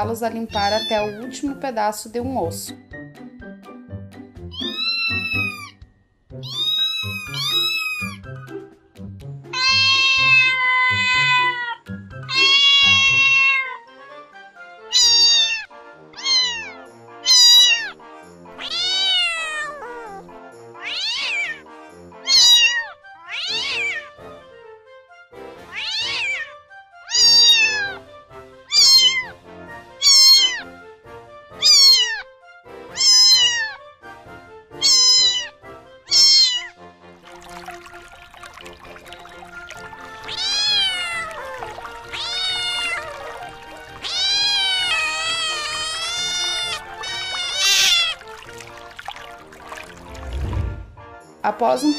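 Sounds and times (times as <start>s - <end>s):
background music: 0.0s - 51.9s
cat meowing: 0.5s - 1.4s, 4.5s - 5.8s, 6.4s - 8.2s, 9.5s - 13.9s, 14.9s - 18.0s, 18.6s - 21.6s, 22.2s - 24.1s, 25.7s - 28.0s, 28.7s - 29.4s, 30.0s - 30.7s, 31.6s - 32.3s, 32.9s - 33.8s, 34.8s - 36.8s, 40.0s - 50.0s.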